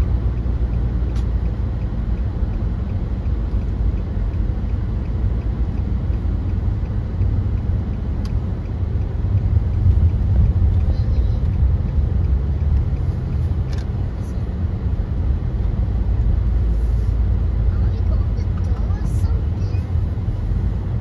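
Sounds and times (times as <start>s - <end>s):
car engine and road noise: 0.0s - 21.0s.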